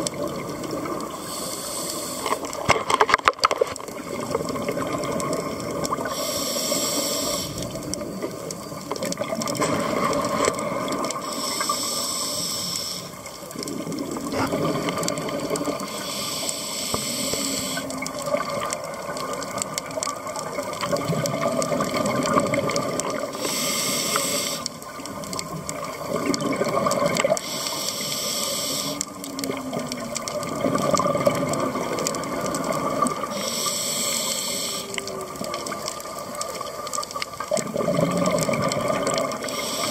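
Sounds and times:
gurgle of exhaled bubbles: 0.0 - 1.2, 3.8 - 6.2, 7.5 - 11.4, 13.5 - 16.0, 17.5 - 23.5, 24.8 - 27.4, 29.0 - 33.4, 34.9 - 39.9
regulator hissing inhalations: 1.1 - 2.5, 6.0 - 7.8, 11.2 - 13.3, 15.8 - 17.9, 23.3 - 24.8, 27.4 - 29.2, 33.3 - 35.2, 39.4 - 39.9.

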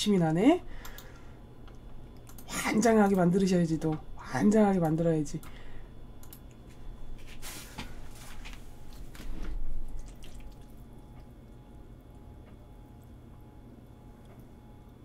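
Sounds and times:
sticky noodles squelching: 8.2 - 10.9.

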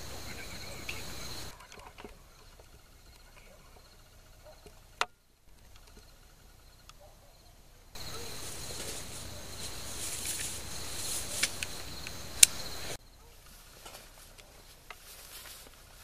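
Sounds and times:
even hiss: 0.0 - 1.5, 8.0 - 13.0
insects chirping: 0.0 - 16.0
sharp clicks: 11.2 - 13.0.

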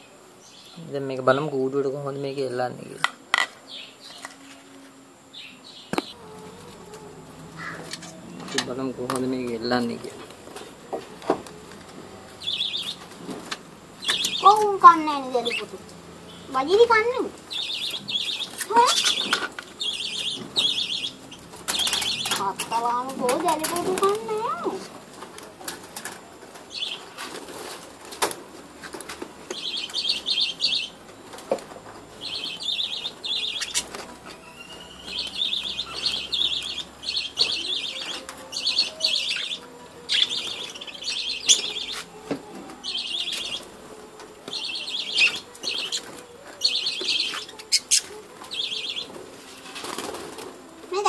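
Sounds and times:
budgerigars chirping: 14.0 - 24.4, 32.2 - 42.1, 44.5 - 49.1
wings flapping: 21.5 - 24.9, 49.6 - 51.0.

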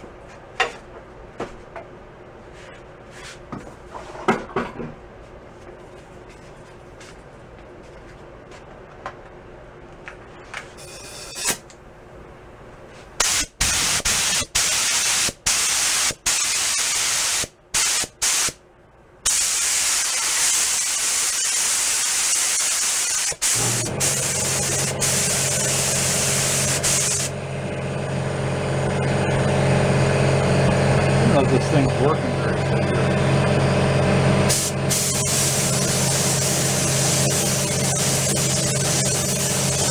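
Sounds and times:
spray gun hissing: 13.2 - 18.6, 19.3 - 27.3, 34.5 - 39.9.

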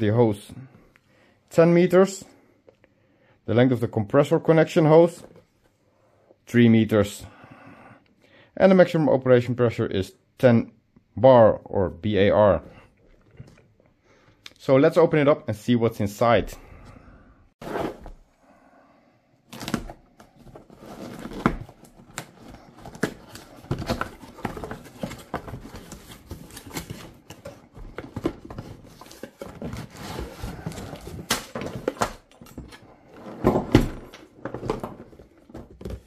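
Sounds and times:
cardboard rustling and scraping: 17.6 - 18.2, 19.6 - 32.0.

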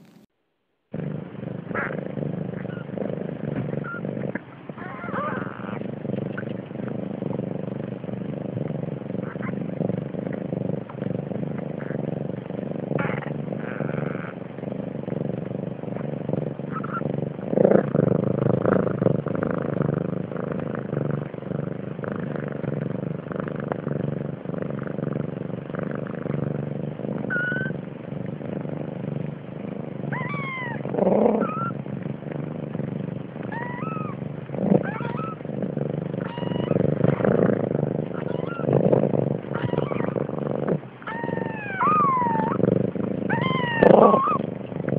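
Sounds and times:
cat purring: 0.0 - 0.3, 0.9 - 44.9
kitten mews: 27.3 - 27.8, 30.1 - 30.8, 33.5 - 34.2, 36.2 - 36.8, 38.2 - 38.7, 39.6 - 40.2, 41.1 - 42.6, 43.3 - 44.4.

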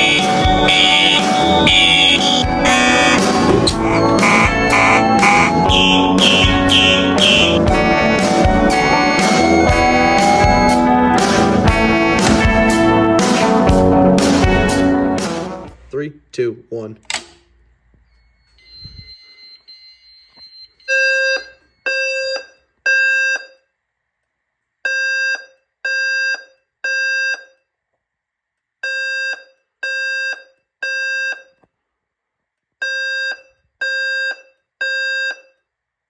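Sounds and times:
fire alarm evacuation tones: 0.0 - 14.6, 18.0 - 23.7, 24.9 - 27.7, 28.8 - 31.6, 32.8 - 35.7.

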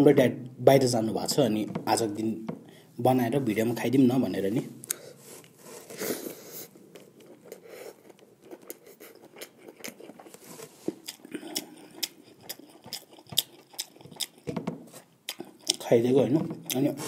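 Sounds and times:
person chewing food: 4.8 - 17.0.

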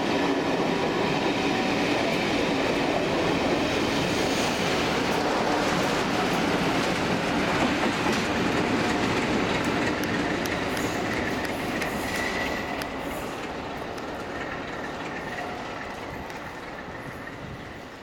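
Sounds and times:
train wheels clattering: 0.0 - 18.0
faint high wheel squeal: 11.8 - 13.4.

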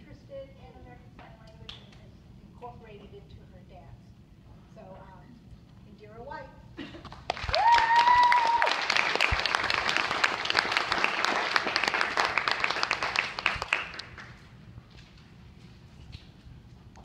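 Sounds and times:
audience applauding: 7.2 - 14.4.

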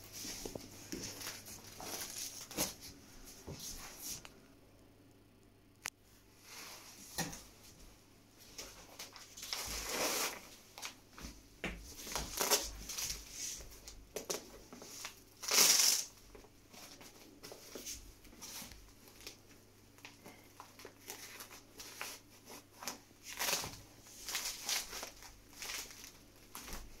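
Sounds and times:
fabric rustling: 0.0 - 4.2, 20.6 - 27.0
velcro tearing: 15.4 - 16.1.

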